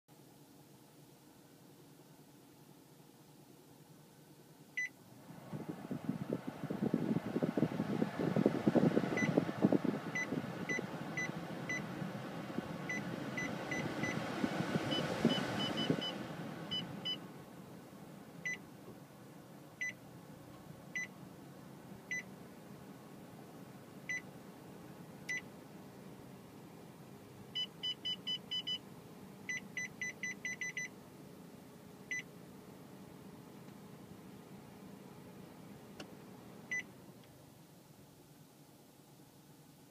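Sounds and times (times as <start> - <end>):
air conditioning blower: 5.0 - 30.9
touch panel beeps: 29.5 - 30.9.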